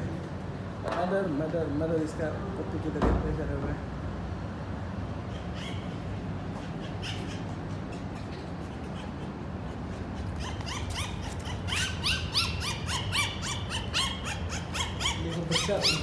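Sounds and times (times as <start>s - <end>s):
puppies squealing and whimpering: 5.0s - 16.0s.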